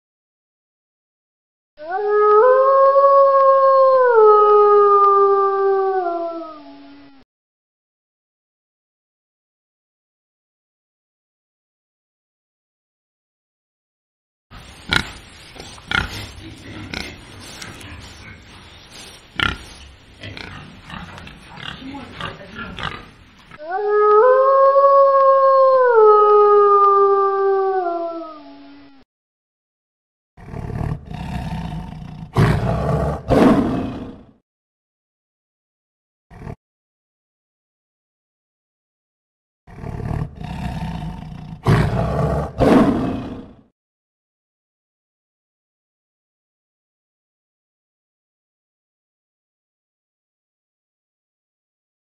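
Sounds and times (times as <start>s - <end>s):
wolf howling: 1.8s - 7.0s, 23.6s - 28.7s
wild boars grunting: 14.6s - 23.6s.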